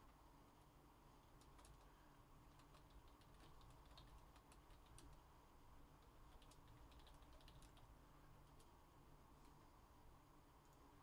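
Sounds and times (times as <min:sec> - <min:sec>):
low room hum: 0:00.0 - 0:11.0
keyboard typing: 0:01.4 - 0:01.9, 0:02.5 - 0:05.2, 0:06.0 - 0:07.9.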